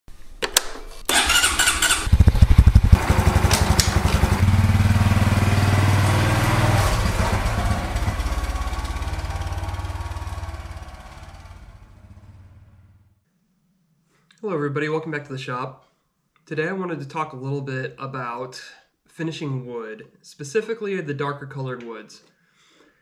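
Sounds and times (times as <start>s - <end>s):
motorcycle starter noise: 1.1s - 12.4s
motorcycle engine running: 1.1s - 13.1s.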